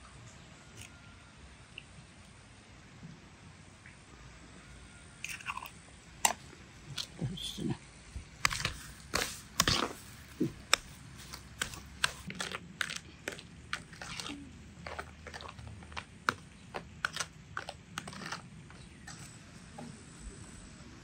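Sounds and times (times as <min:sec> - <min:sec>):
metal spoon scraping plastic bowl: 0:08.4 - 0:19.4.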